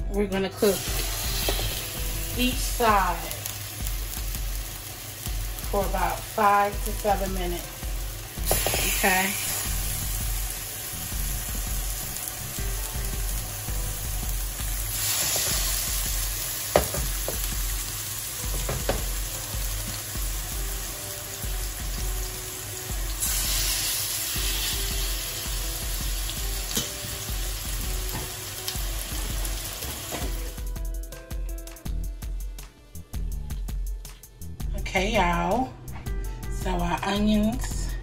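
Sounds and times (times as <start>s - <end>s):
chicken sizzling in a pan: 0.6s - 30.6s.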